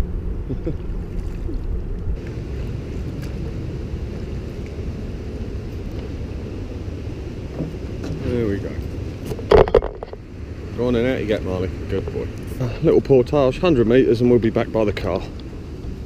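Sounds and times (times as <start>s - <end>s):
wind rumble on microphone: 0.0s - 16.0s
water sloshing: 0.8s - 3.4s.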